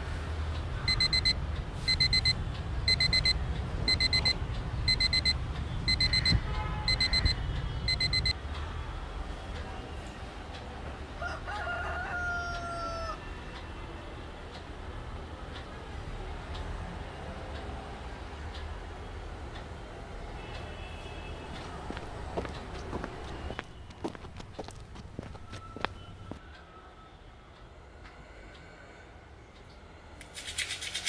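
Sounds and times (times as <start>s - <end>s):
alarm clock beeping: 0.9s - 8.4s.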